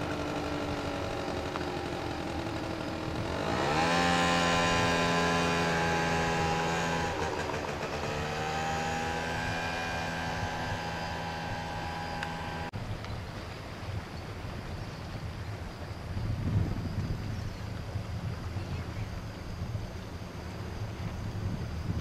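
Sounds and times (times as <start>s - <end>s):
motor engine running: 0.0s - 12.7s.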